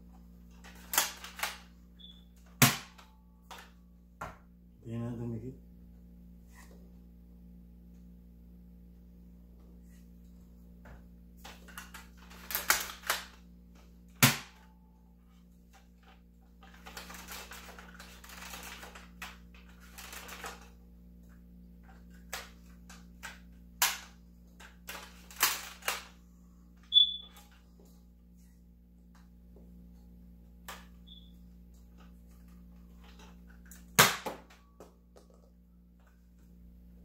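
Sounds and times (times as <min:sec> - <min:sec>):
toy blaster plastic clicks and snaps: 0:11.7 - 0:13.4.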